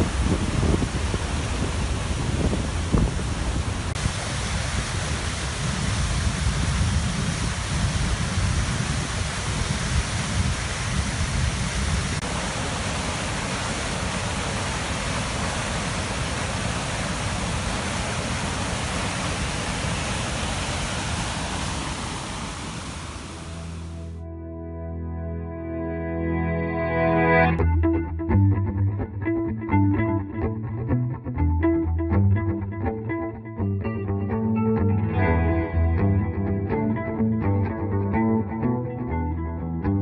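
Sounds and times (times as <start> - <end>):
creek and waterfall rushing: 0.0 - 24.0.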